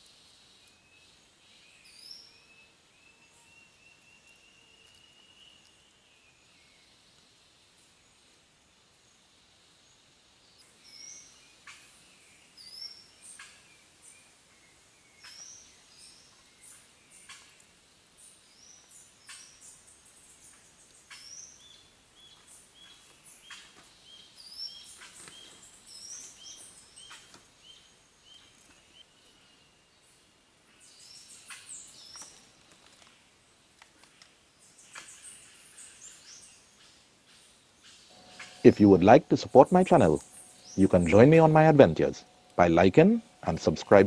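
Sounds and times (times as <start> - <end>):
birds chirping and whistling: 38.0 - 44.0.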